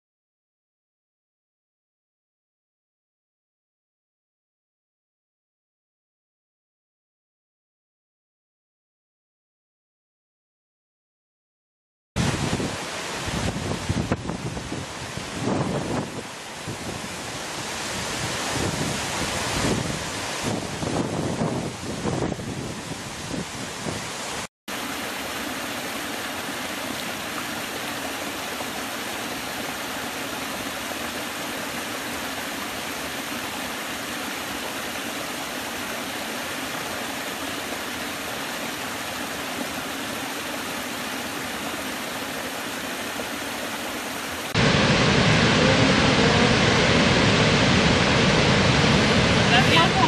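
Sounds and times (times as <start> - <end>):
waterfall rushing: 12.2 - 50.0.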